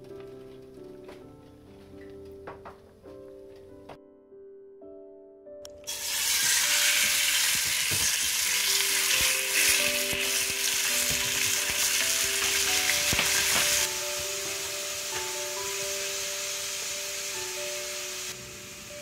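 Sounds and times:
soft background music: 0:00.0 - 0:19.0
chicken sizzling in a pan: 0:05.9 - 0:19.0.

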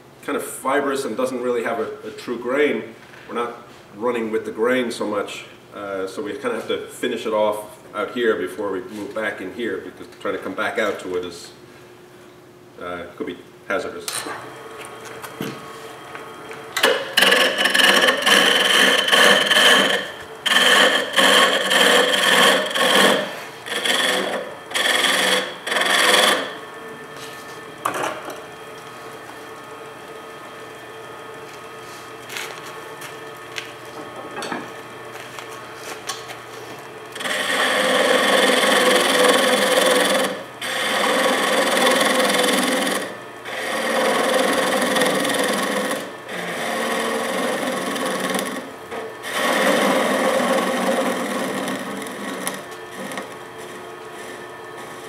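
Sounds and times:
lathe running: 0:14.3 - 0:55.0
tool scraping wood on a lathe: 0:16.8 - 0:30.3, 0:35.5 - 0:55.0.

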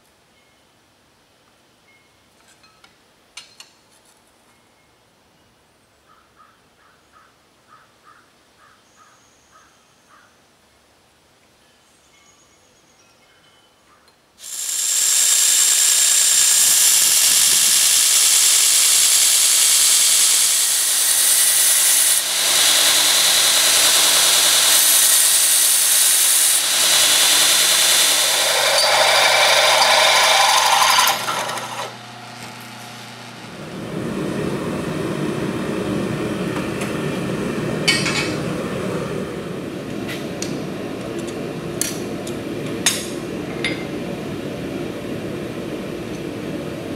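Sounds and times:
belt grinder grinding steel: 0:14.4 - 0:33.4.

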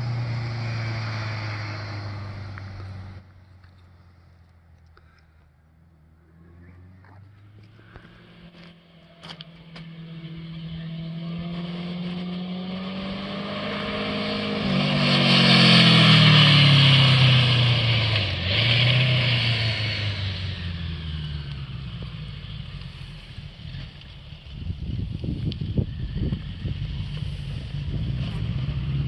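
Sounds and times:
motorcycle riding by: 0:06.3 - 0:29.0.

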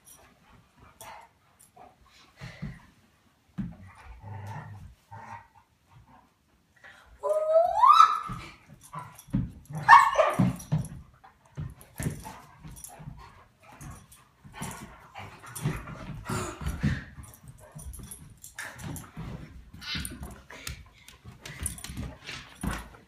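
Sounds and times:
dogs yipping and whining: 0:07.2 - 0:10.9.

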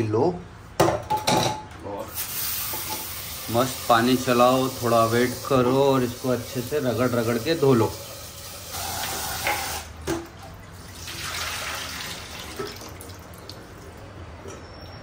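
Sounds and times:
tap running into pot: 0:09.4 - 0:10.3.

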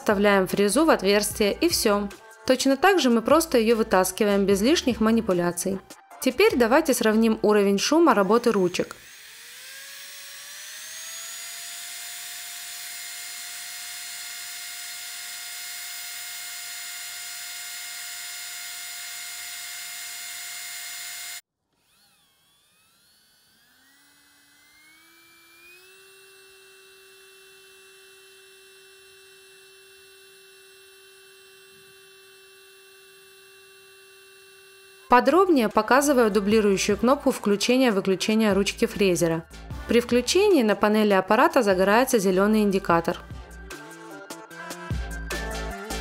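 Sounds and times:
electric nail drill whine: 0:06.4 - 0:37.9.

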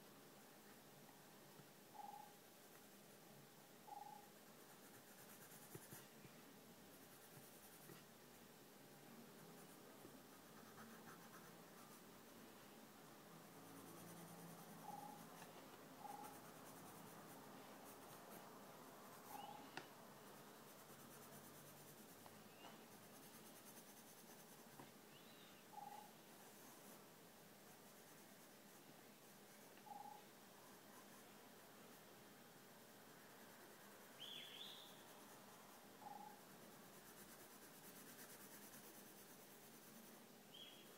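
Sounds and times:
faint chirps: 0:01.9 - 0:02.5, 0:03.8 - 0:04.4, 0:14.4 - 0:17.4, 0:19.1 - 0:20.5, 0:22.2 - 0:23.6, 0:25.1 - 0:26.8, 0:29.6 - 0:31.4, 0:33.8 - 0:36.5, 0:40.5 - 0:40.9
pencil scratching on paper: 0:04.5 - 0:06.2, 0:06.9 - 0:08.1, 0:09.4 - 0:12.2, 0:13.5 - 0:19.5, 0:20.2 - 0:24.9, 0:26.4 - 0:27.0, 0:27.6 - 0:29.8, 0:35.1 - 0:40.2.

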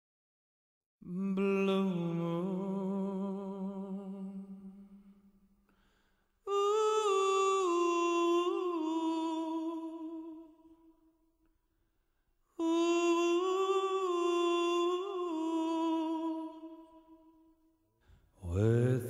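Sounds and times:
person humming: 0:12.6 - 0:16.9.

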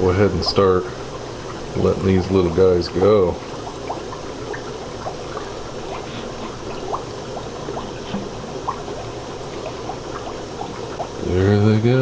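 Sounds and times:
water plinks and trickles: 0:00.0 - 0:11.4
aquarium water bubbling: 0:00.0 - 0:12.0.

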